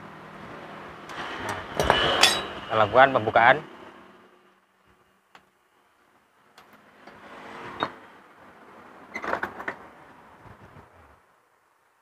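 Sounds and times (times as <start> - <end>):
metal clinks and knocks: 1.5 - 2.6.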